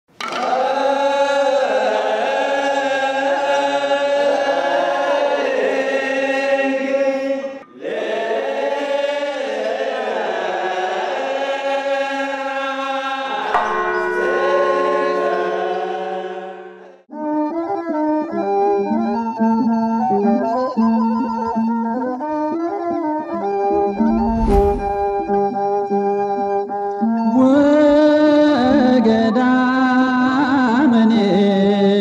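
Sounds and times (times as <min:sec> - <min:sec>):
choir chanting over drone: 0:00.4 - 0:17.1
low hit: 0:23.9 - 0:25.4.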